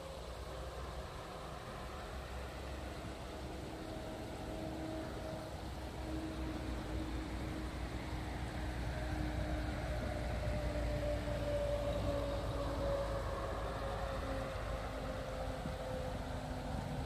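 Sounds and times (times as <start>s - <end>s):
vehicle engine hum: 0.0s - 17.0s.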